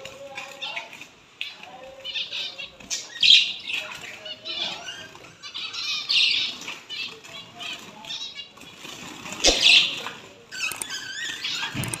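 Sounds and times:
finches chirping: 1.5 - 8.8, 9.4 - 12.0
finches fluttering wings: 6.8 - 12.0.

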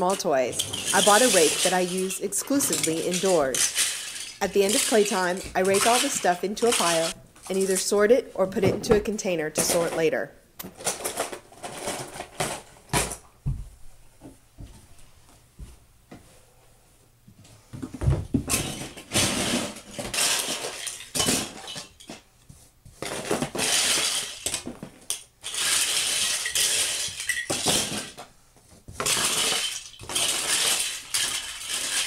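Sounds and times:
plastic toy blocks clattering: 0.0 - 8.0, 18.5 - 22.2, 23.0 - 28.2, 29.0 - 32.0.

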